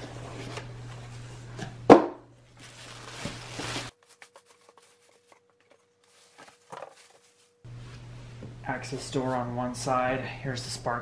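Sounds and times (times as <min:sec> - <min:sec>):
plastic rustling: 0:02.5 - 0:07.6.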